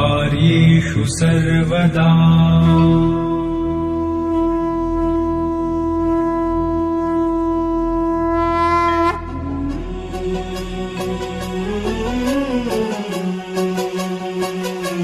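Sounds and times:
conch shell blown: 2.6 - 10.0
music with sliding tone: 9.0 - 15.0.

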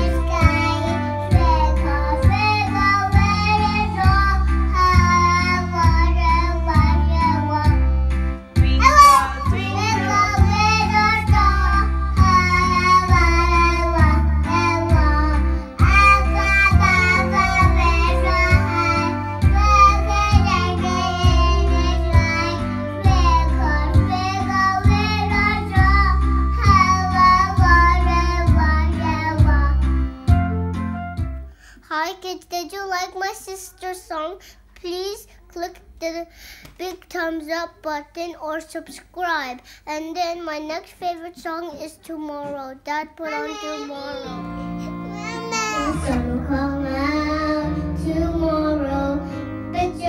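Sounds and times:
child singing: 0.0 - 7.8, 8.6 - 29.8, 40.0 - 44.4, 45.1 - 50.0
karaoke backing track: 0.0 - 31.5, 43.3 - 50.0.

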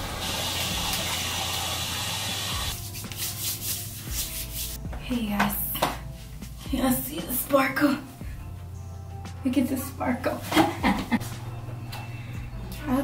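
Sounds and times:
deodorant stick rubbing skin: 2.7 - 4.8.

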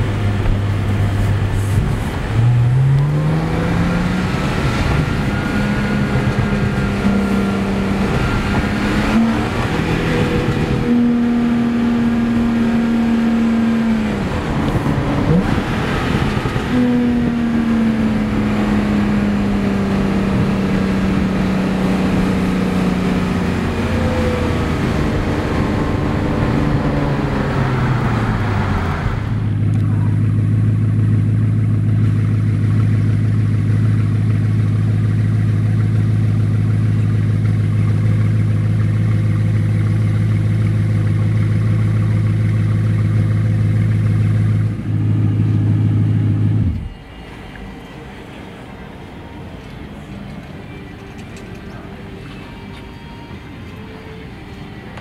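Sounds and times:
car engine idling: 0.0 - 3.2, 22.9 - 55.0
car engine heard from cabin: 0.0 - 55.0.

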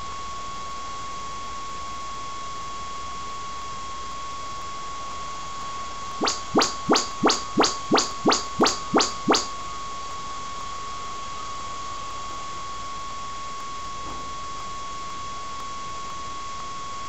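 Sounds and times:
faint high whine: 6.2 - 9.5
rising chirp sweeps: 6.2 - 9.5.

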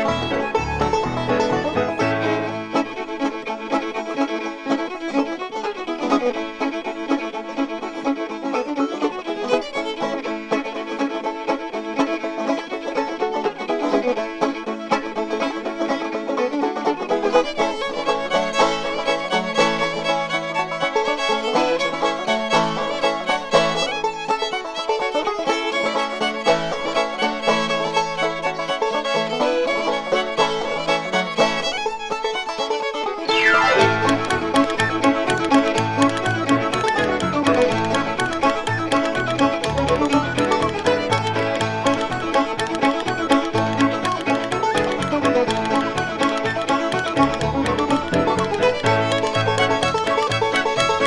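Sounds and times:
fiddle melody: 0.0 - 51.0
folk band playing fast reels: 0.0 - 51.0
plucked strings: 0.0 - 51.0.

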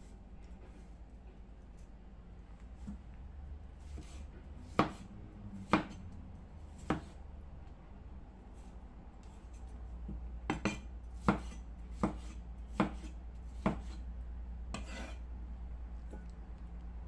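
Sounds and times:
cleaver chopping on cutting board: 3.9 - 5.1, 5.7 - 6.0, 6.8 - 7.2, 10.5 - 14.0.

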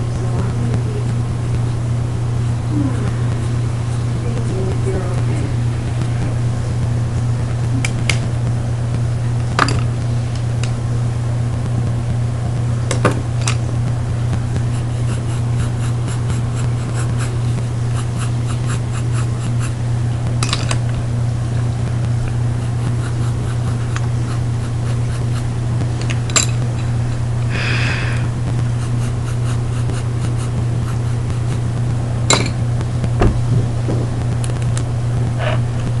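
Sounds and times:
steady low hum: 0.0 - 36.0
pen scratching on paper: 14.6 - 19.8, 22.5 - 25.5, 28.7 - 31.6.

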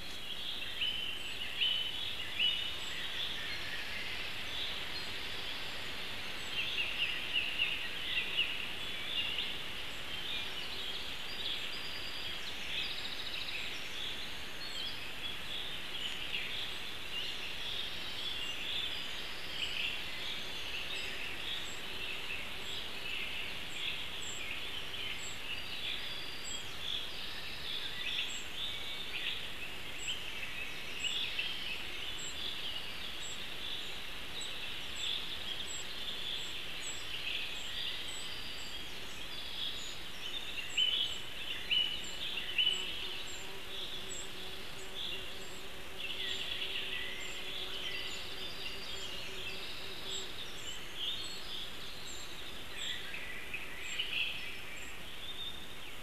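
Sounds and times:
birds singing and calling: 0.0 - 56.0
steady background hiss: 0.0 - 56.0.

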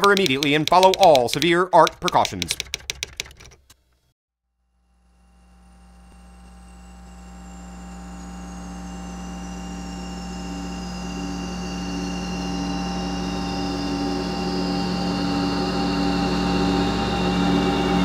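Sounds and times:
electronic drone: 5.8 - 18.0.

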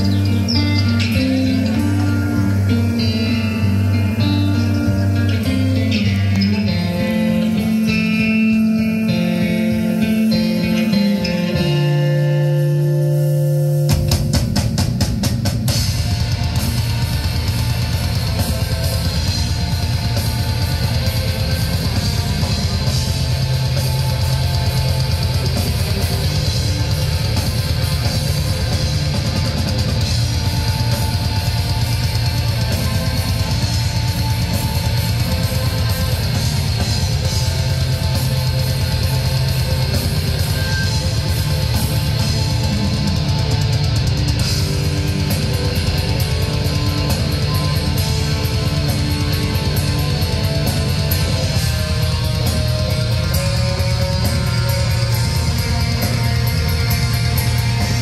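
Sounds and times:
distorted electric guitars: 0.0 - 58.0
rapid drum strokes: 0.0 - 58.0.

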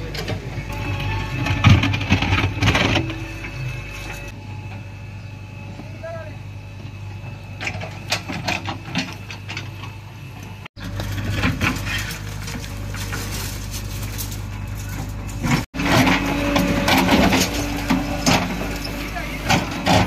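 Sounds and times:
diesel engine running: 0.0 - 20.0
bucket scraping soil and stones: 10.8 - 20.0.

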